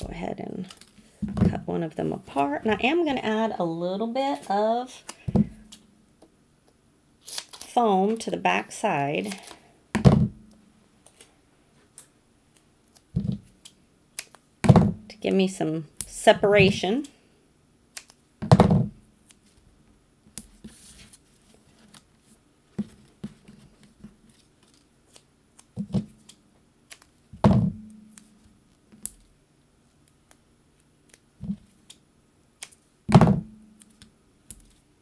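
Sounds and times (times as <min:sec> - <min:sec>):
dull thumps on tabletop: 0:10.0 - 0:10.4, 0:14.6 - 0:15.1, 0:18.4 - 0:19.0, 0:33.1 - 0:33.5.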